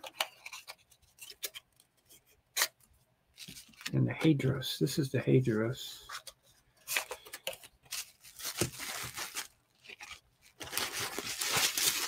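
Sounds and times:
bubble wrap crinkling: 0:07.8 - 0:12.0.

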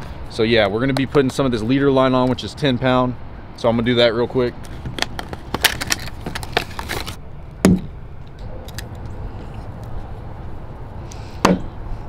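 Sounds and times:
steady low rumble: 0:00.0 - 0:12.0
plastic packaging crinkling: 0:04.6 - 0:07.2
plastic packaging snapping: 0:04.7 - 0:07.2.

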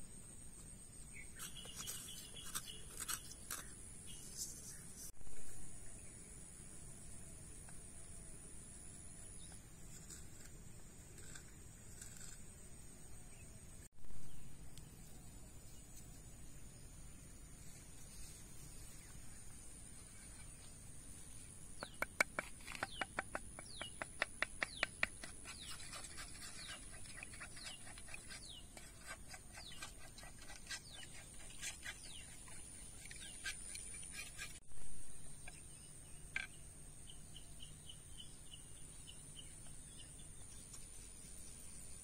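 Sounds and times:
birds chirping: 0:01.0 - 0:05.1, 0:21.8 - 0:41.0.

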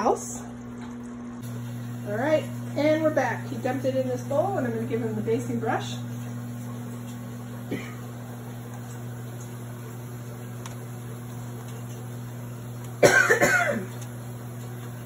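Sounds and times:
steady low hum: 0:00.0 - 0:15.0
person coughing: 0:07.7 - 0:08.1, 0:13.0 - 0:13.9.

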